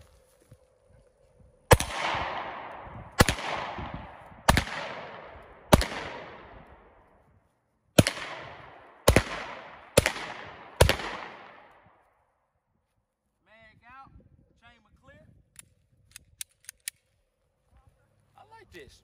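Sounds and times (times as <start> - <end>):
pistol shots with echo: 1.7 - 7.0, 8.0 - 11.9.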